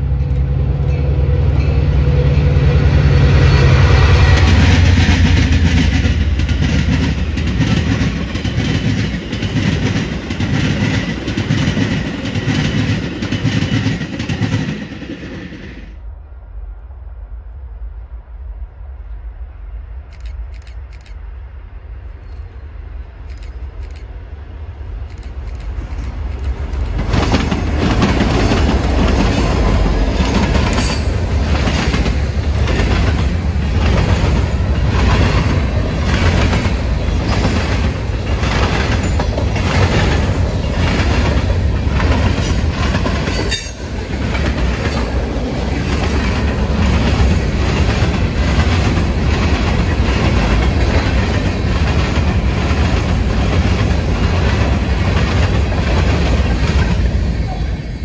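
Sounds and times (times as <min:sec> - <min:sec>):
diesel locomotives passing: 0:00.0 - 0:58.0
train rumble: 0:00.0 - 0:58.0
train wheels clacking on rail joints: 0:03.5 - 0:15.5, 0:25.0 - 0:57.0.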